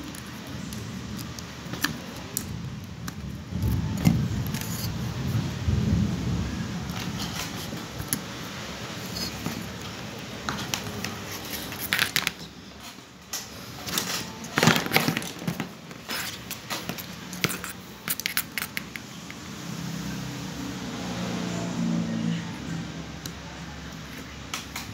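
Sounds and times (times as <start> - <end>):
wire cable clicking and rattling: 9.1 - 19.1.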